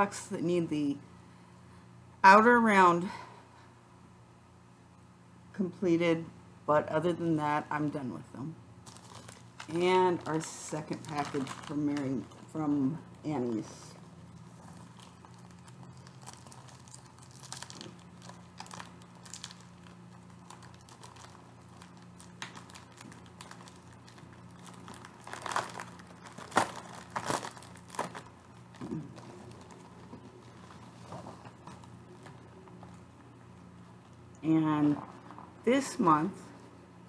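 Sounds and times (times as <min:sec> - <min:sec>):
faint low hum: 0:00.0 - 0:37.0
plastic packaging crinkling: 0:08.8 - 0:34.2.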